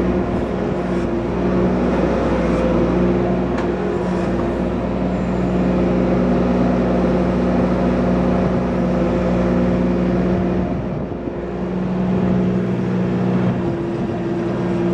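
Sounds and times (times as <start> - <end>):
excavator diesel engine running: 0.0 - 14.9.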